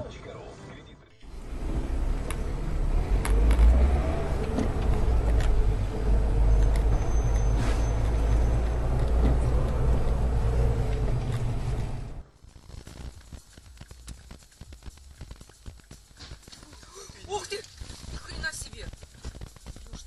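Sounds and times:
car engine and road rumble: 0.0 - 20.0.

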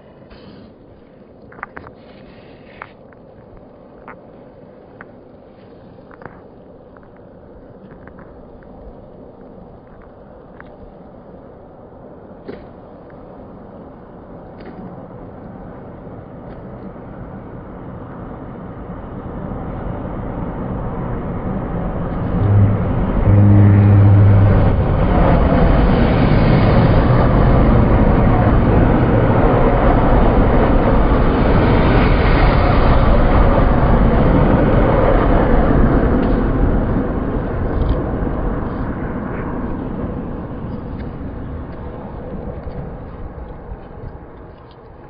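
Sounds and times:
train wheels and engine rumble: 0.0 - 45.0
train horn blast: 22.2 - 25.8.

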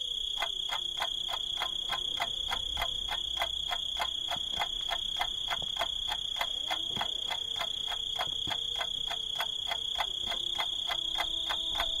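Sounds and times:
pulsing tick: 0.0 - 12.0
high-pitched whine: 10.2 - 12.0.

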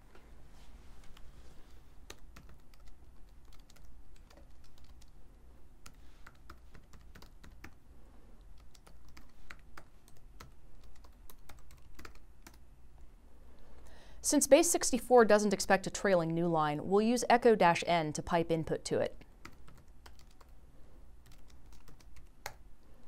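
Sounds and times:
typing on computer keyboard: 2.1 - 5.2, 5.8 - 7.8, 8.5 - 12.6, 19.4 - 20.6, 21.2 - 22.6.

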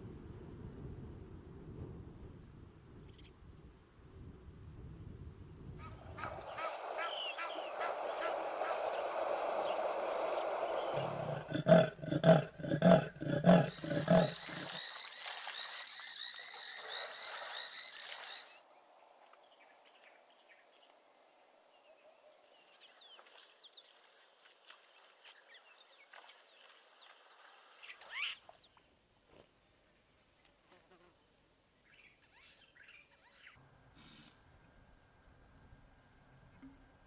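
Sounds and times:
faint bird calls: 5.8 - 18.6, 21.8 - 28.8, 31.8 - 34.4
steady hiss: 5.9 - 19.0
hippo grunting and honking: 11.0 - 14.8
rising bird whistle: 13.7 - 18.6.

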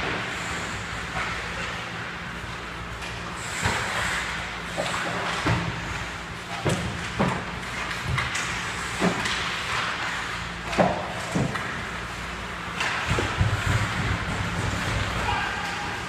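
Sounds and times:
steady low hum: 0.0 - 16.0
skates scraping ice: 2.4 - 6.0, 7.6 - 16.0.

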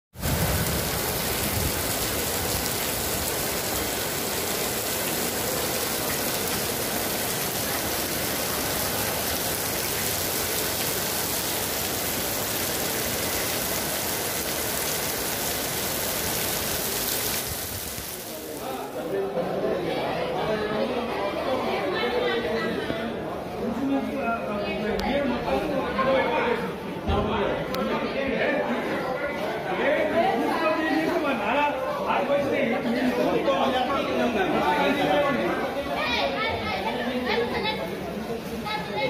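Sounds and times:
heavy rain hissing: 0.2 - 19.2.

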